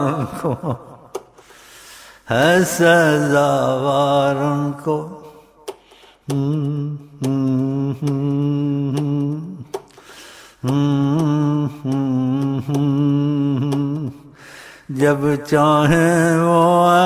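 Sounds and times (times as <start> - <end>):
man chanting in held notes: 2.2 - 5.4, 10.6 - 17.0.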